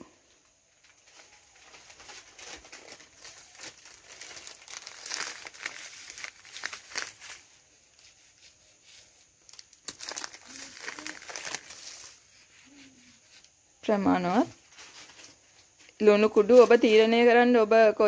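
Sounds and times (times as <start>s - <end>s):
plastic packet crinkling: 1.0s - 7.5s, 9.4s - 12.4s.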